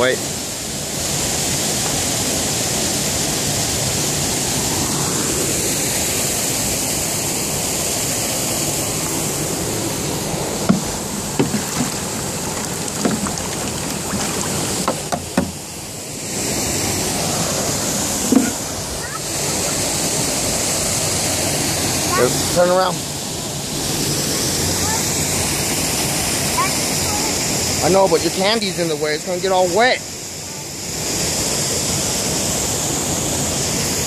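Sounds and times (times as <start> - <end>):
water rushing over a weir: 0.0 - 34.0
light knocks: 12.6 - 15.6.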